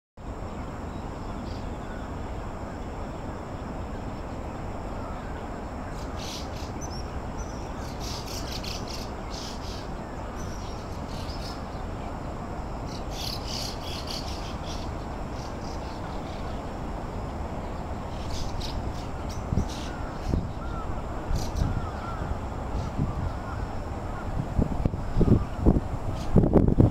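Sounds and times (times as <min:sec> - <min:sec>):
low background rumble: 0:00.2 - 0:26.9
small birds chirping: 0:04.1 - 0:11.9, 0:12.8 - 0:16.7, 0:17.6 - 0:24.2.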